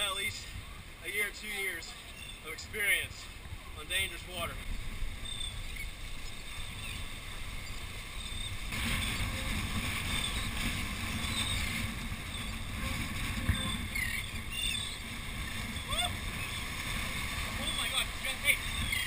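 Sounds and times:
wind buffeting microphone: 3.1 - 19.0
waves washing against rocks: 6.0 - 19.0
faint gull calls: 11.2 - 16.8, 17.6 - 19.0.

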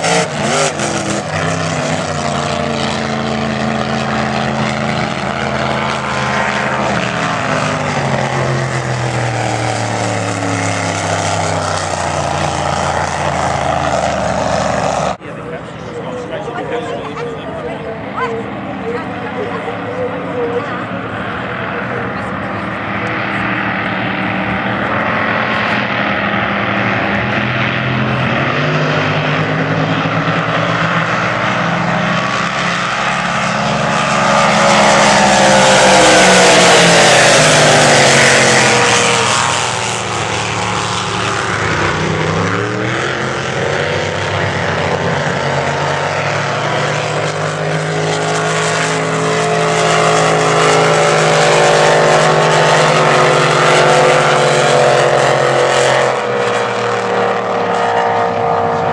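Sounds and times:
racing powerboats passing by: 0.0 - 58.9.

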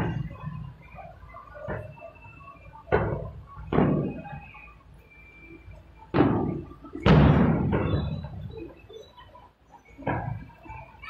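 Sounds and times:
distant fireworks booming: 6.1 - 8.7.

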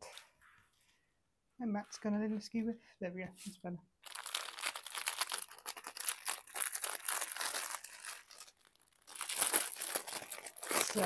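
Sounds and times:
plastic bag crinkling: 4.0 - 11.0.

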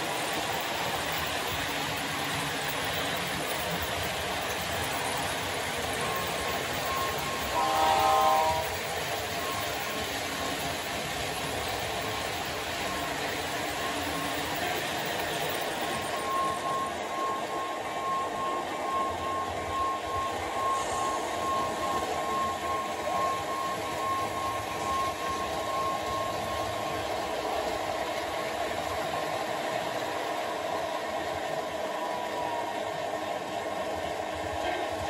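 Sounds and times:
model trains humming and rumbling: 0.0 - 35.0
thin high tone: 5.8 - 10.0, 12.0 - 29.2.

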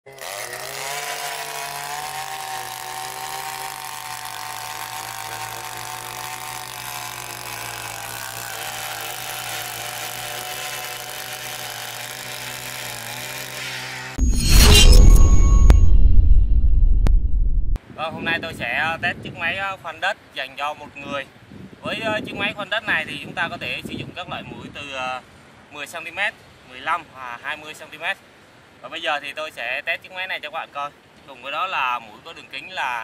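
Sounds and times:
earth auger engine running: 0.1 - 13.6.

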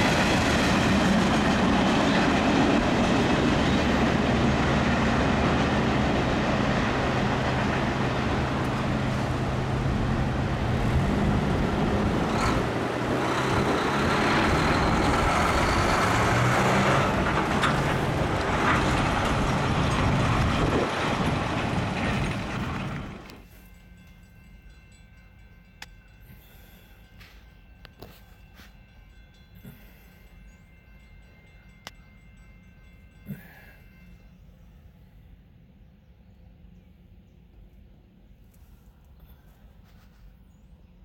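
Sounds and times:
freight train rumbling: 0.0 - 41.0
vehicles driving over a crossing: 1.1 - 23.4.

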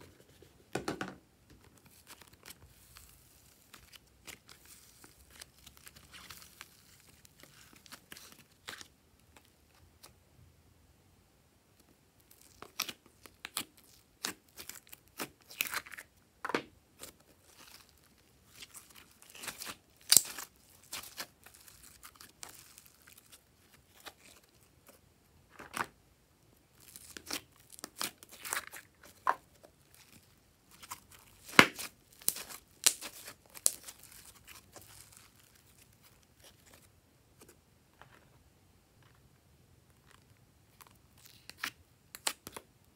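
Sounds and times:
sticky slime crackles: 1.8 - 9.8, 12.2 - 16.1, 17.0 - 25.0, 26.7 - 36.9.

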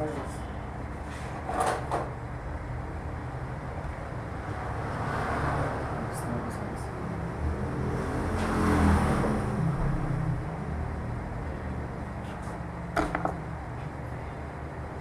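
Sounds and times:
low steady rumble: 9.4 - 15.0.

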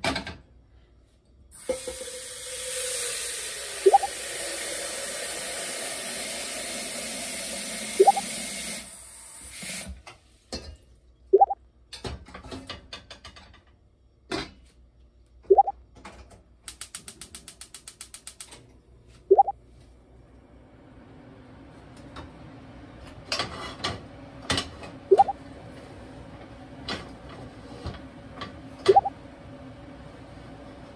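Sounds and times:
pop sound effect rising tone: 3.9 - 4.1, 8.0 - 8.2, 11.4 - 11.6, 15.5 - 15.7, 19.3 - 19.5, 25.1 - 25.4, 28.9 - 29.1
quick run of clicks: 16.7 - 18.5.

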